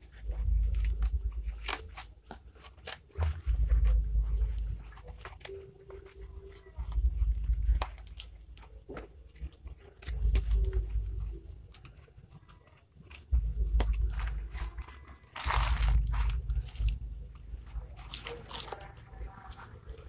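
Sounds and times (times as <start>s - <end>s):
scissors snipping: 0.0s - 3.4s, 17.7s - 20.0s
paper and plastic crinkling: 0.0s - 20.0s.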